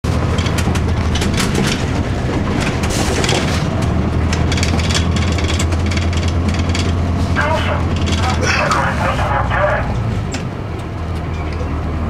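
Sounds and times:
bus diesel engine drone: 0:00.0 - 0:12.0
cabin panels rattling: 0:00.3 - 0:07.0.

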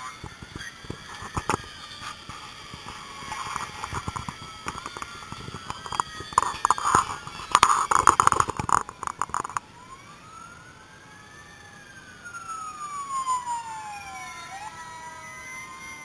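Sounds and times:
sharp clicks and knocks: 0:00.0 - 0:09.6
emergency sirens wailing: 0:00.0 - 0:16.0.

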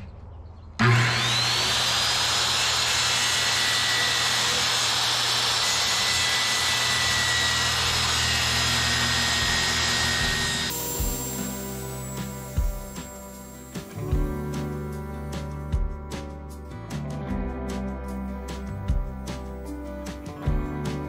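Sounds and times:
circular saw whining: 0:00.8 - 0:14.2.

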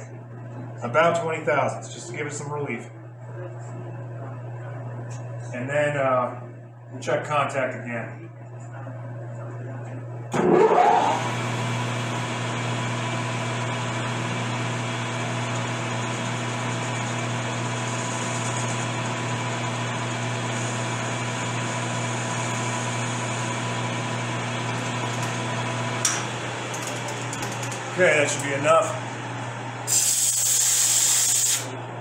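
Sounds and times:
metal lathe running: 0:10.6 - 0:31.7.

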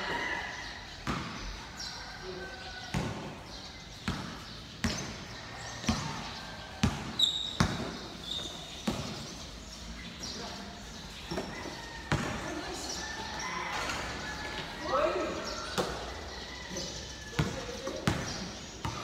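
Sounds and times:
basketball bouncing on hard court: 0:04.0 - 0:05.2, 0:05.8 - 0:09.4, 0:11.3 - 0:12.4, 0:17.4 - 0:19.0.

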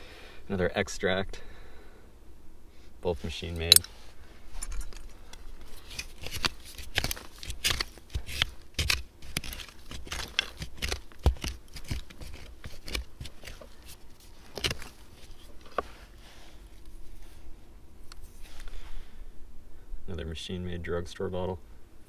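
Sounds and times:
hand tool scraping dirt: 0:05.7 - 0:16.0.

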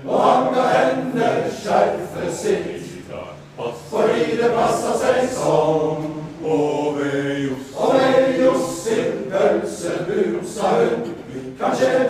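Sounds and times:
men's choir singing: 0:00.0 - 0:12.0.

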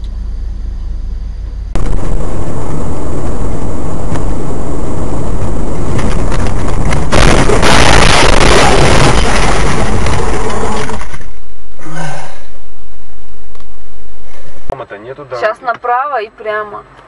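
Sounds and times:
vehicle low hum: 0:00.0 - 0:17.0
loud rushing noise: 0:01.8 - 0:11.4.

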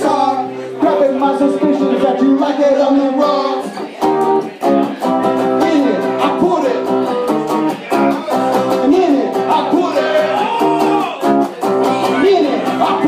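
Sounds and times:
acoustic guitar strummed chords: 0:00.0 - 0:13.0
person singing wordless vocal: 0:08.9 - 0:13.0.

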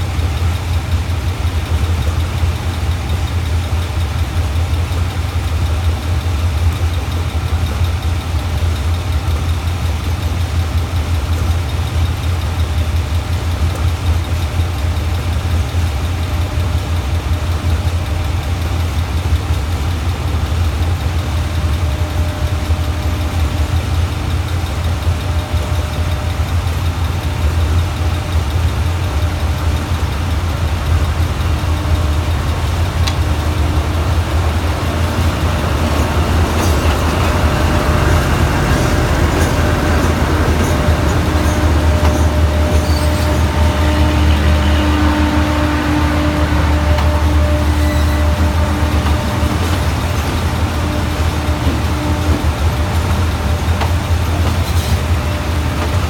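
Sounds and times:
diesel locomotive engine droning: 0:00.0 - 0:56.0.

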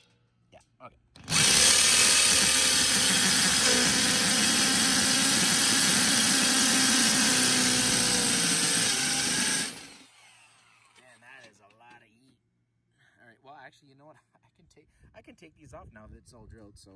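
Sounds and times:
power drill cutting metal: 0:01.2 - 0:11.1.

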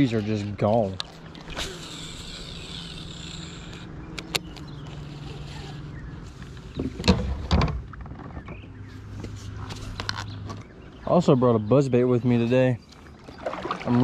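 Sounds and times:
fishing reel whirring: 0:01.4 - 0:05.9.

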